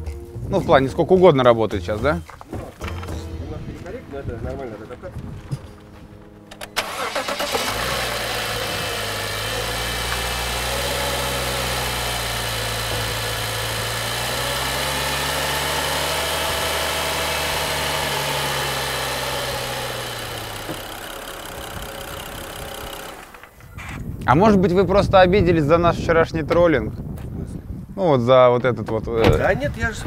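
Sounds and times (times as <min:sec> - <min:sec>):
car engine starting and idling: 0:05.8 - 0:23.7.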